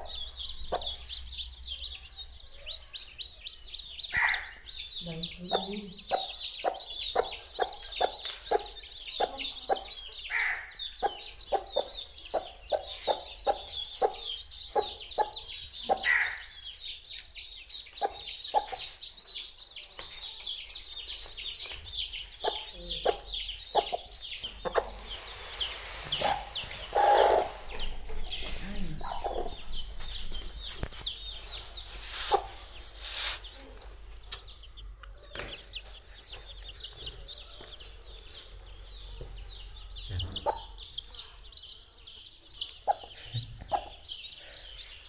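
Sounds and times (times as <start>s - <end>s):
chicks peeping: 0.0s - 45.0s
hen clucking low: 26.2s - 29.6s.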